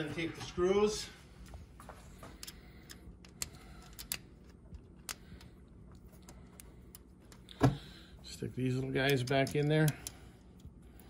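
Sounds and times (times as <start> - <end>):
faint low hum: 0.0 - 11.0
small metal screws clicking: 2.4 - 5.2.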